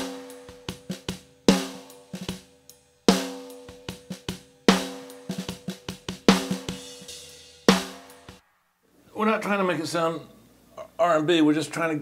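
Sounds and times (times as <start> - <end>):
hi-hat hits: 0.0 - 8.6.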